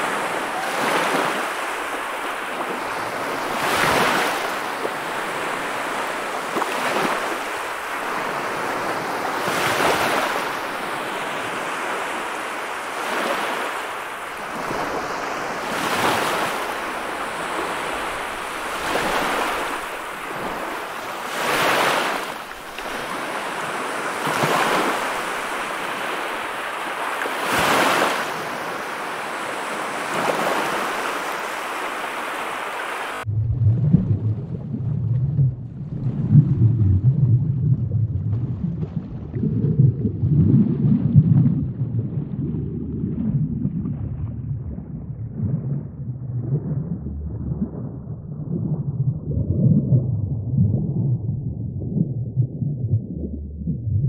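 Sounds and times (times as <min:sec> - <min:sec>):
hiss of surf: 0:00.0 - 0:33.3
sea waves surging: 0:00.0 - 0:35.2.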